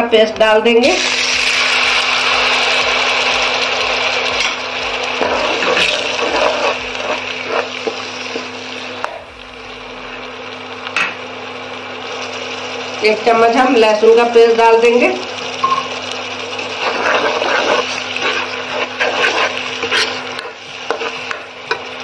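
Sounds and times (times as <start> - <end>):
paste sizzling in hot oil: 0.9 - 22.0
spatula scraping and tapping pan: 16.8 - 22.0.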